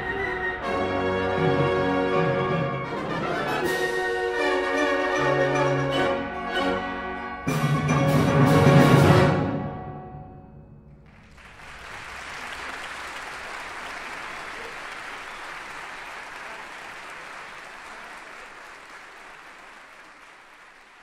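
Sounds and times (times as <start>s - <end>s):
audience applause: 11.0s - 21.0s.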